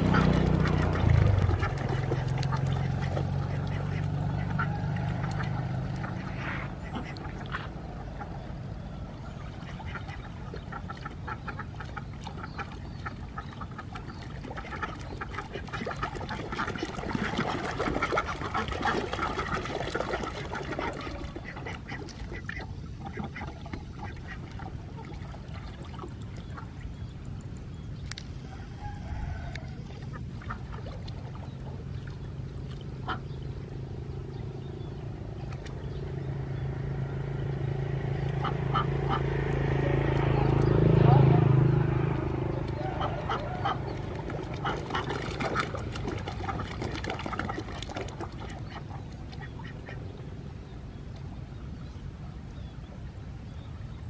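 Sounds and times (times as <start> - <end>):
ducks quacking: 0.0 - 8.5, 9.2 - 25.8, 33.0 - 33.5, 38.1 - 50.2.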